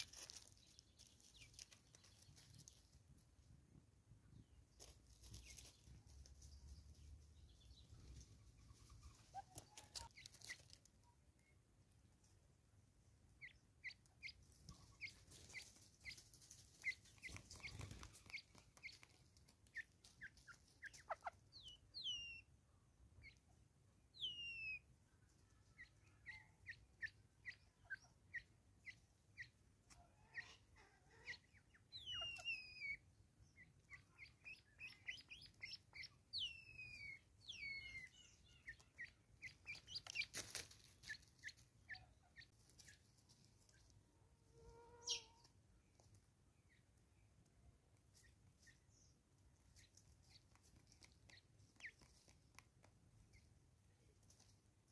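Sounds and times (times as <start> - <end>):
bird chirping: 0.0 - 3.5, 4.2 - 12.4, 13.0 - 54.9
bird pecking at tree stump: 16.8 - 20.3, 49.7 - 53.4.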